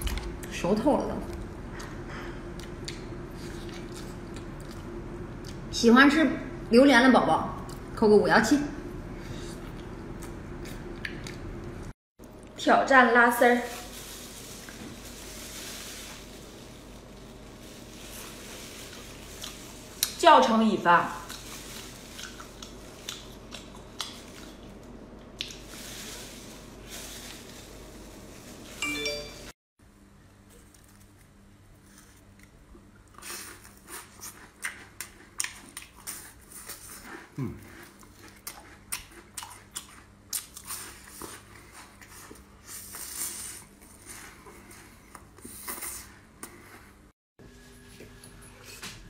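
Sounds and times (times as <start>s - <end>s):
crunching fried rolls: 13.4s - 28.8s, 30.4s - 46.9s
chewing and biting meat: 21.3s - 24.8s, 32.0s - 43.5s.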